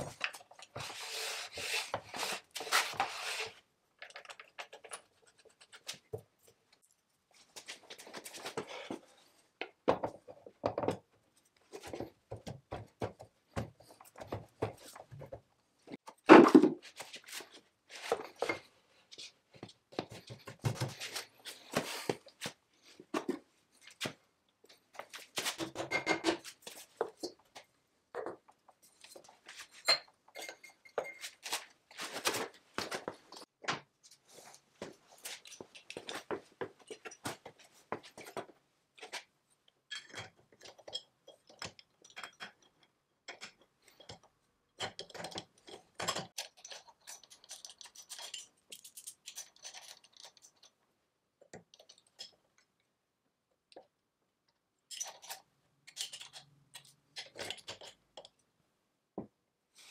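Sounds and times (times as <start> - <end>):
metal parts clinking and scraping: 46.1 - 50.8, 54.9 - 58.0.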